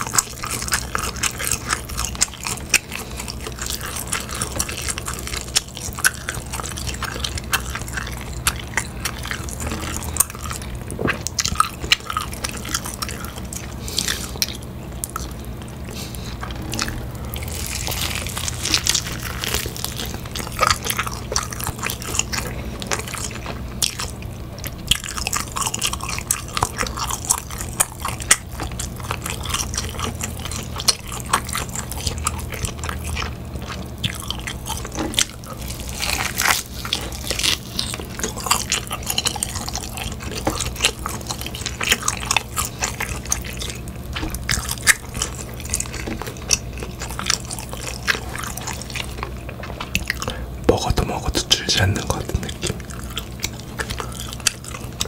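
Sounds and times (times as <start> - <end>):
biting and chewing meat: 0.0 - 55.0
low hum: 1.9 - 21.7.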